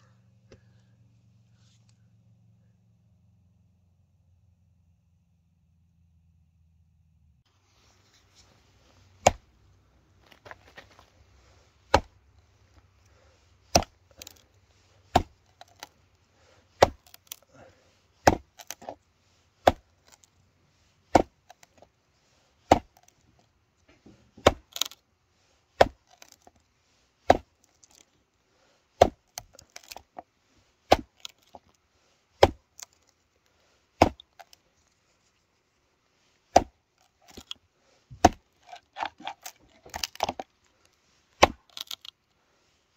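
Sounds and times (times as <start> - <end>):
machete chopping wood: 9.2 - 9.5, 11.9 - 12.2, 13.7 - 14.4, 15.1 - 15.9, 16.8 - 17.4, 18.2 - 19.0, 19.6 - 20.3, 21.1 - 21.8, 22.6 - 23.1, 24.1 - 25.0, 25.8 - 26.5, 27.2 - 28.0, 29.0 - 30.2, 30.8 - 31.6, 32.4 - 33.0, 34.0 - 34.6, 36.5 - 40.5, 41.4 - 42.1.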